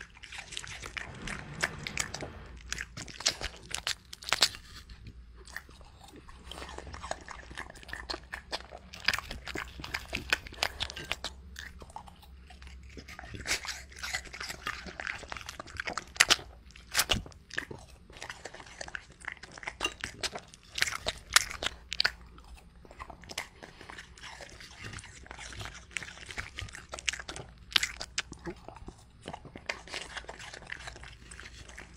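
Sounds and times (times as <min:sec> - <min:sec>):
dog chewing apple crunches: 0:00.0 - 0:31.9.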